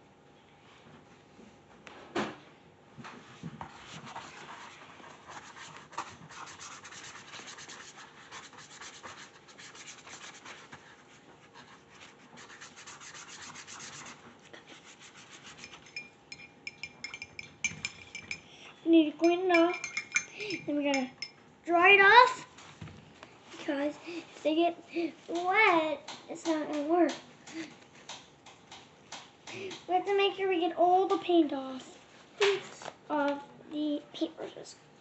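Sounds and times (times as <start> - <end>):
paintbrush scrubbing on paper: 3.7 - 16.0
brushes clinking against mugs: 15.5 - 21.4.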